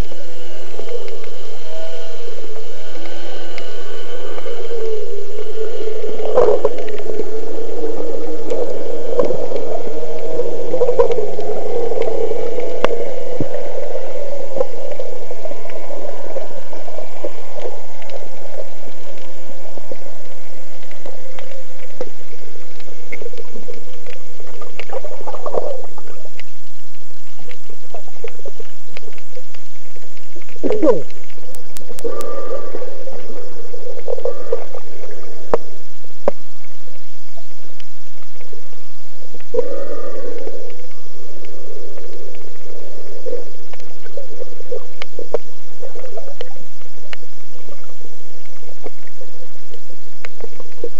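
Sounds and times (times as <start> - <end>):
low humming drone: 0.0 - 50.9
muffled water swirling underwater: 0.0 - 50.9.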